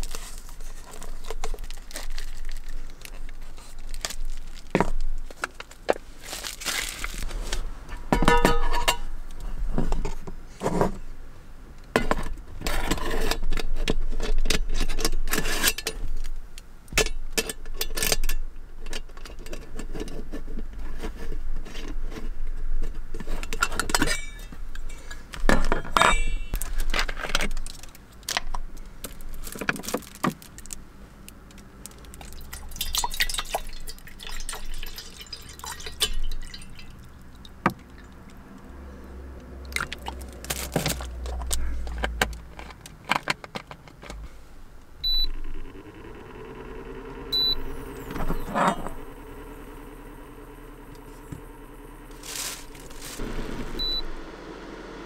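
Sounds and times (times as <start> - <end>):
glass and tableware clinking: 8.2 - 9.1, 26.0 - 26.6.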